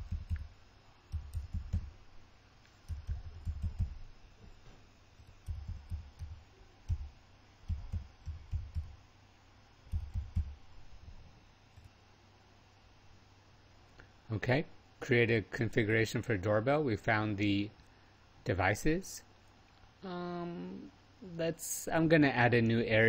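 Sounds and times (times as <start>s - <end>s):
keyboard typing thuds: 0.0s - 0.5s, 1.1s - 2.0s, 2.8s - 4.5s, 5.2s - 9.0s, 9.8s - 10.6s.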